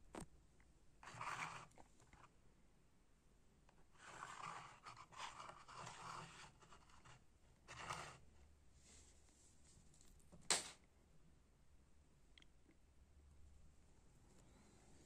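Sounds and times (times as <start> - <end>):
faint rustling and handling noise: 0.0 - 2.5, 3.6 - 10.8.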